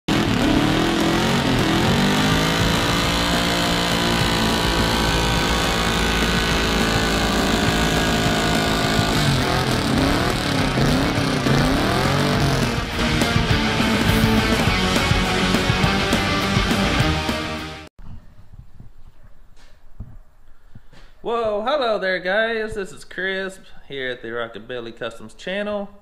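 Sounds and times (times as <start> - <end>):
car engine revving: 0.1 - 17.9.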